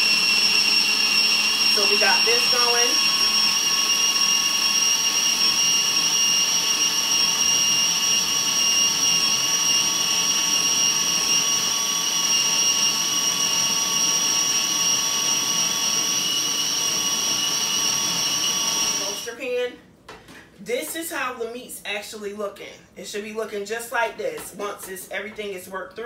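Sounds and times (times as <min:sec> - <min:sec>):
food chopper motor whining: 0:00.0 - 0:19.3.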